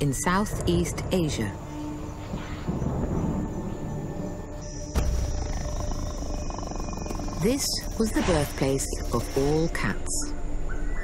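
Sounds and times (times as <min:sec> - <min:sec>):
music: 0:00.0 - 0:11.0
big cat growling: 0:05.0 - 0:08.9.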